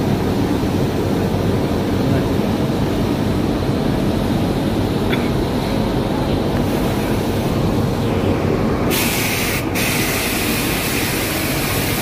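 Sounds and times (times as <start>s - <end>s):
spray gun hissing: 8.9s - 12.0s.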